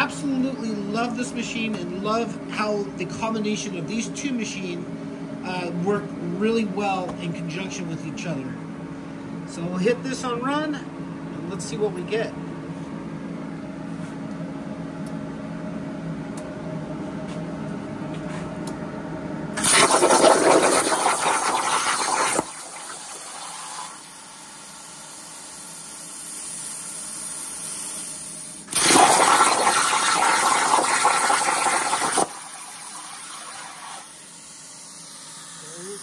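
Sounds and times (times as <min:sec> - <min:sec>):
machine humming: 0:00.0 - 0:24.8
plasma arc hissing: 0:19.6 - 0:36.0.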